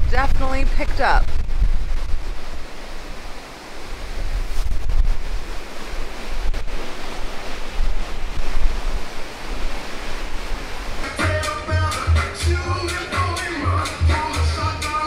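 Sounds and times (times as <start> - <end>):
wind buffeting microphone: 0.0 - 11.2
rough sea rushing: 0.0 - 15.0.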